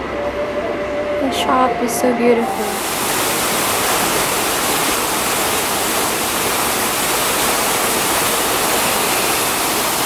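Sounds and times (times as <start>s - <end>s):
water splashing from waterwheel: 2.6s - 10.0s.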